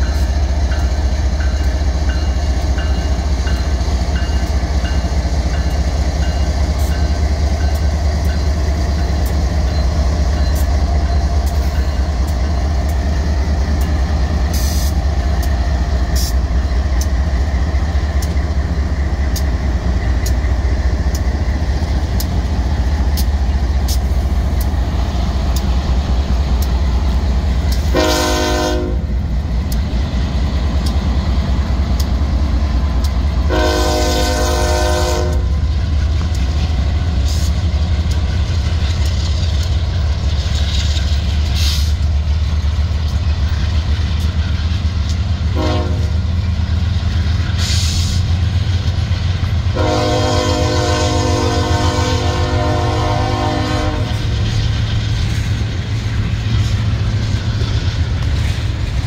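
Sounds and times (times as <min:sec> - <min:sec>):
wheels clicking over rail joints: 0:00.0 - 0:28.0, 0:35.6 - 0:49.7
diesel locomotive rumbling: 0:00.0 - 0:59.0
train air horn blasts: 0:27.8 - 0:29.1, 0:33.5 - 0:35.5, 0:45.5 - 0:46.1, 0:49.7 - 0:54.2.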